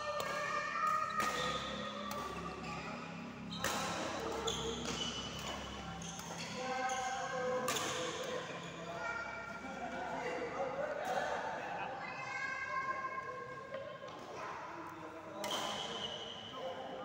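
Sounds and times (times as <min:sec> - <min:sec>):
badminton racket hitting shuttlecock: 0:00.2 - 0:02.5, 0:03.6 - 0:06.4.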